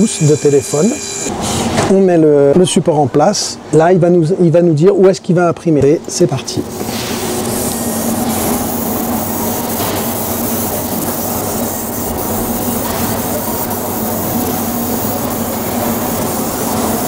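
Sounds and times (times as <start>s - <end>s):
laser engraver humming: 0.0s - 1.8s, 6.1s - 17.0s.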